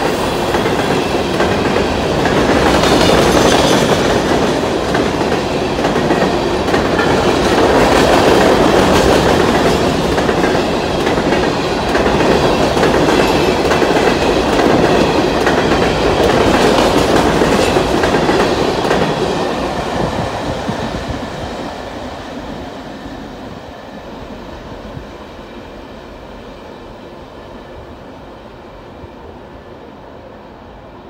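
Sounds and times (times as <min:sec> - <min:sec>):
freight train wheels clicking: 0:00.0 - 0:22.6.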